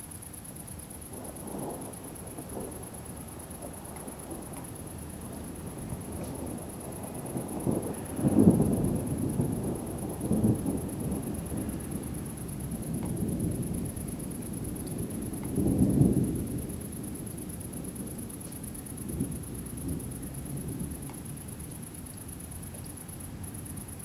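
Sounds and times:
thunder rumbling: 1.1 - 18.4.

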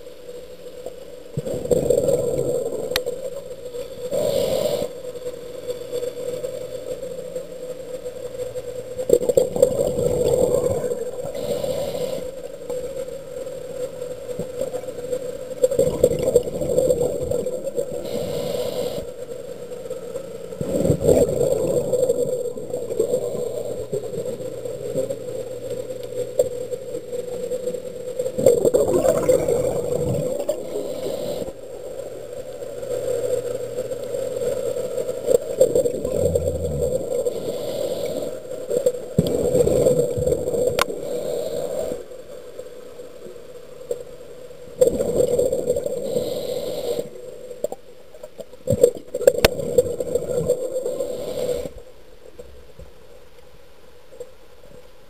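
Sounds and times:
steady hum: 0.0 - 55.0
diver breathing underwater: 4.0 - 5.3, 9.2 - 12.8, 15.7 - 25.2, 28.4 - 32.1, 35.7 - 42.2, 45.0 - 47.4, 49.3 - 51.8.

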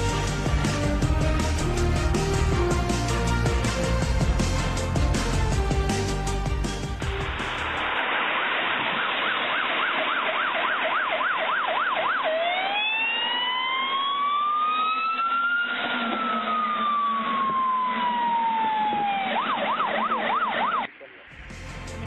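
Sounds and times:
fire engine siren: 7.9 - 21.0.

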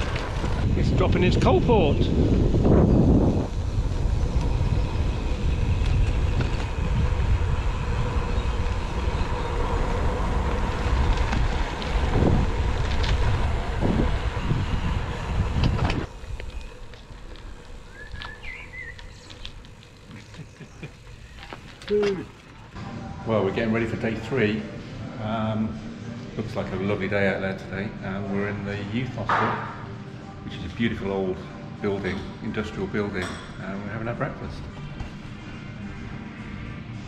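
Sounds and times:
wind buffeting microphone: 0.0 - 21.7
bicycle road rumble: 0.0 - 37.0.

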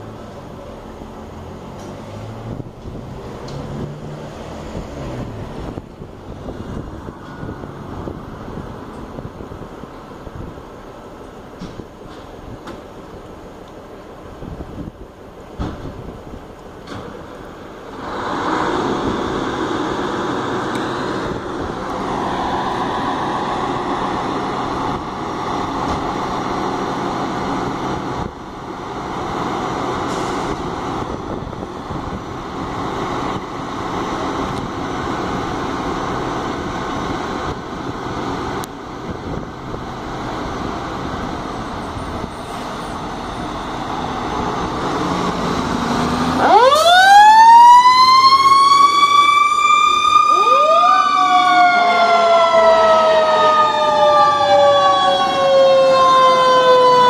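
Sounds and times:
diesel engines running: 0.0 - 57.0
fire truck siren wailing: 17.9 - 39.8, 40.4 - 57.0
lower siren tone: 46.3 - 57.0.

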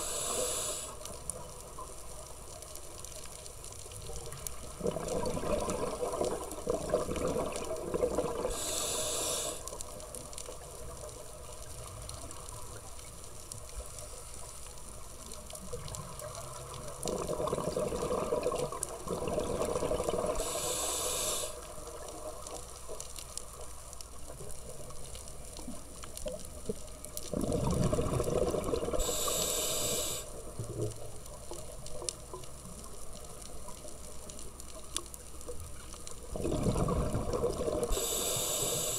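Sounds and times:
regulator hiss: 0.0 - 1.3, 8.3 - 9.9, 20.3 - 22.0, 28.9 - 30.5, 37.8 - 38.9
underwater regulator breathing bubbles: 6.9 - 9.7, 17.1 - 21.6, 27.3 - 30.3, 36.4 - 38.9.

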